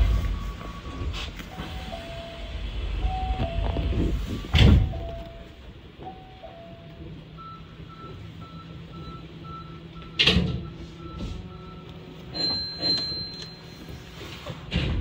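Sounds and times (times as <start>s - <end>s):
train low hum: 0.0s - 15.0s
short beeps: 0.2s - 13.7s
loud thud: 4.5s - 5.0s.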